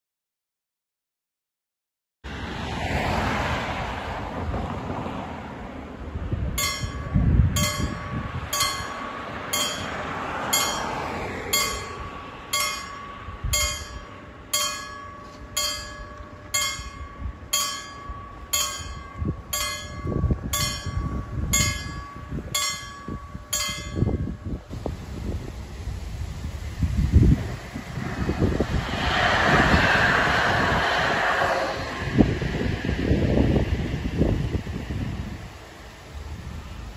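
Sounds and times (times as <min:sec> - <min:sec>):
road traffic noise: 0:02.2 - 0:36.9
level crossing warning bell: 0:06.6 - 0:24.7.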